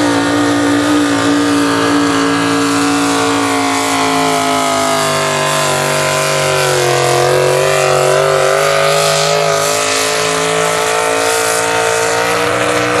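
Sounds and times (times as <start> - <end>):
truck engine at high revs: 0.0 - 13.0.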